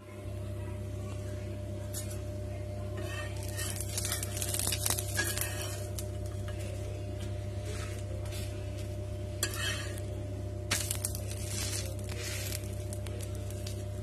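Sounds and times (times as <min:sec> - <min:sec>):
steady hum: 0:00.0 - 0:14.0
steel spatula scraping flat pan: 0:03.0 - 0:06.0, 0:09.4 - 0:10.1, 0:10.8 - 0:13.7.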